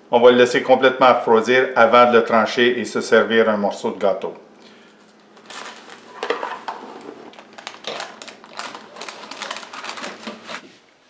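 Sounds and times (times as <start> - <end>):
parchment paper rustling: 5.0 - 10.8.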